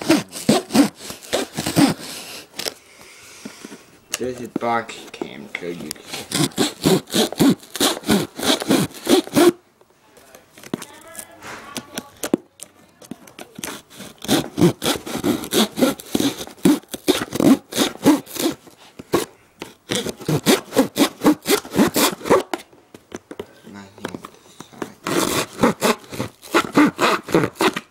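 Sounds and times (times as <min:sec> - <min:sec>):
blade sawing cardboard: 0:00.0 - 0:02.7, 0:06.0 - 0:09.6, 0:13.6 - 0:22.6, 0:25.0 - 0:27.9.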